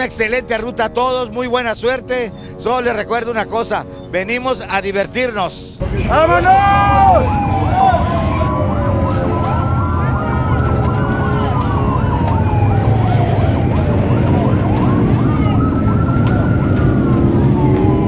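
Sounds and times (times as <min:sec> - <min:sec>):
off-road vehicle engines rumbling: 0:00.0 - 0:18.0
siren wailing: 0:05.8 - 0:18.0
chirping siren: 0:05.9 - 0:18.0.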